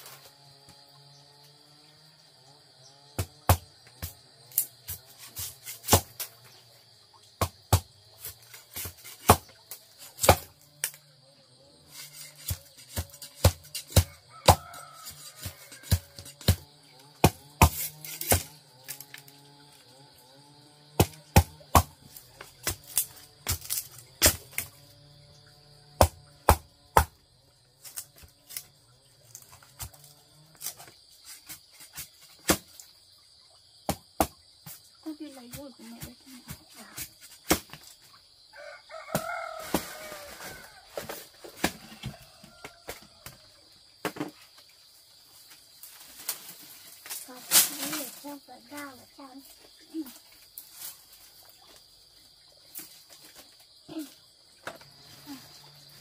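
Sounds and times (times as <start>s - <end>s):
high-pitched insect drone: 0.0s - 7.3s, 8.1s - 31.0s
sharp chopping knocks: 21.0s - 22.0s.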